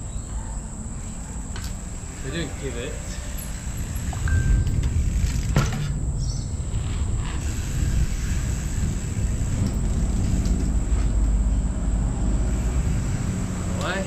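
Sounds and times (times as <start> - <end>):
wind buffeting microphone: 3.4 - 14.0.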